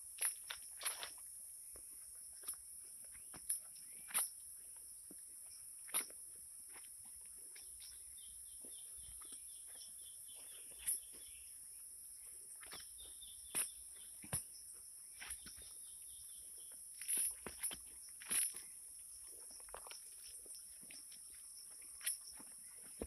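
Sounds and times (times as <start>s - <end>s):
footsteps on soil: 6.0s - 11.5s, 19.5s - 23.0s
bird chirping: 7.3s - 17.0s.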